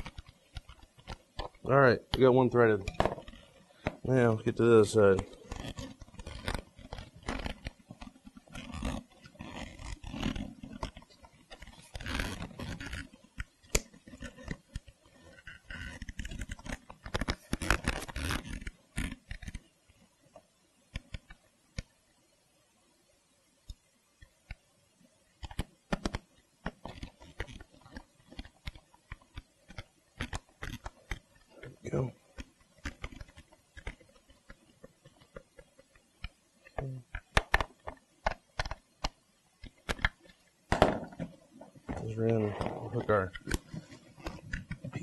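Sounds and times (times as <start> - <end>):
leather cushion scraping and rustling: 5.2 - 13.1
clicks and taps: 32.3 - 40.4.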